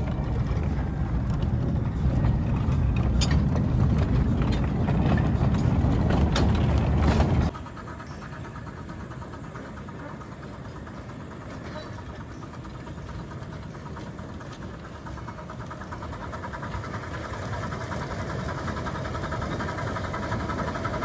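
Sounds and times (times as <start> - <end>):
sharp clicks of wheels: 0.0 - 7.6
miniature steam train rolling: 0.0 - 21.0.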